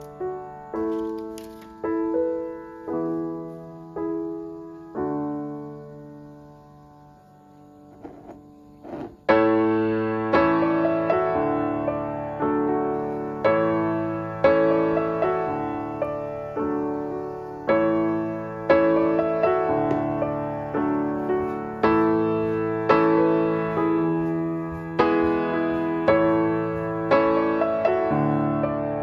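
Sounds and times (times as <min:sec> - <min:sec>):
gentle piano music: 0:00.0 - 0:29.0.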